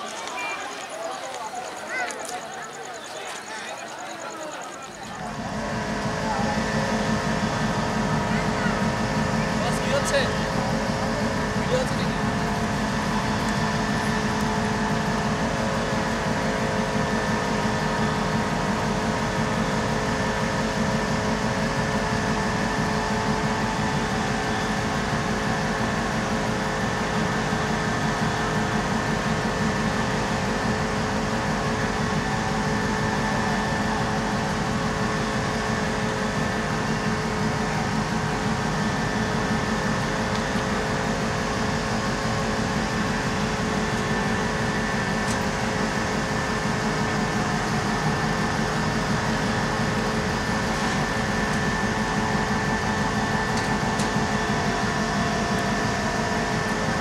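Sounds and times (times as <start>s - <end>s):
locomotive idling: 0.0s - 57.0s.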